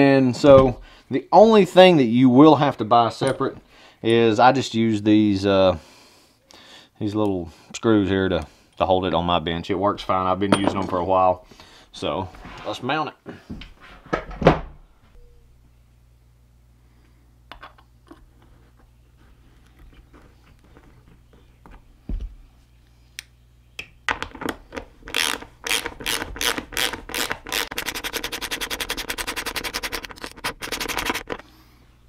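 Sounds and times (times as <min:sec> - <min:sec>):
ratchet wrench clicking: 0:25.1 - 0:31.4.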